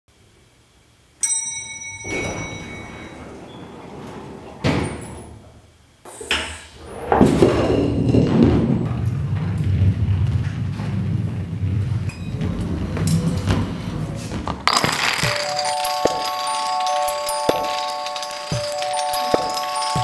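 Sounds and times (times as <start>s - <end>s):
elevator chime: 1.2s - 5.4s, 14.9s - 20.0s
elevator doors sliding open: 1.7s - 14.7s
bowling ball rolling on hard floor: 2.0s - 5.6s, 6.8s - 20.0s.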